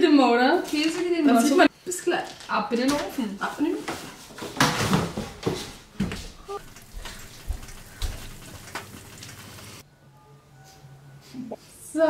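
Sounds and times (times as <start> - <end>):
plates rustling and clattering: 0.6 - 9.4.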